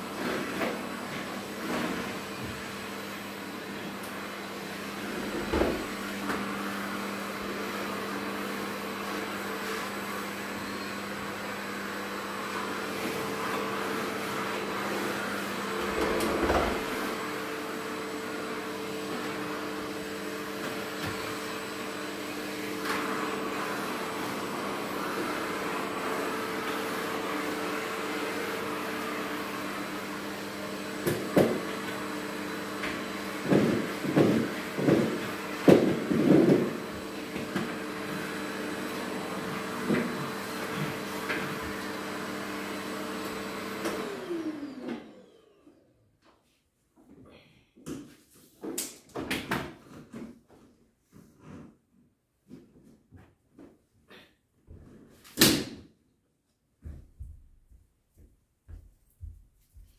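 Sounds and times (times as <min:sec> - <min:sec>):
vacuum cleaner humming: 0:00.0 - 0:46.1.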